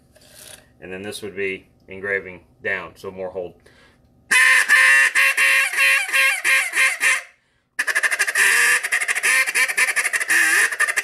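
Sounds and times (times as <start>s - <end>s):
duck call chattering feed call: 4.3s - 11.0s
duck call quacks: 4.3s - 11.0s.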